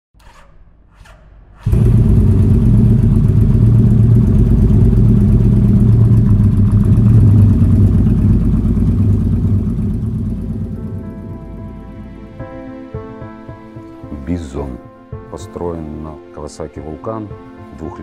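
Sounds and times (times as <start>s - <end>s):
motorcycle engine idling: 1.6s - 12.8s.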